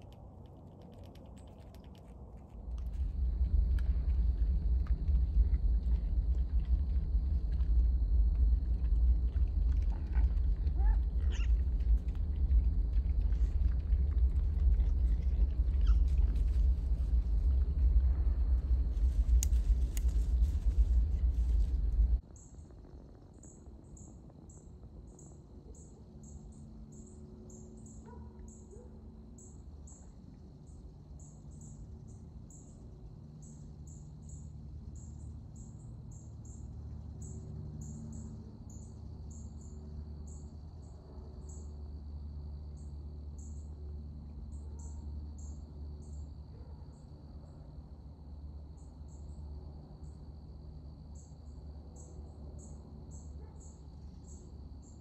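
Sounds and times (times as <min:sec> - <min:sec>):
low steady rumble: 0:00.0 - 0:55.0
high insect drone: 0:29.2 - 0:55.0.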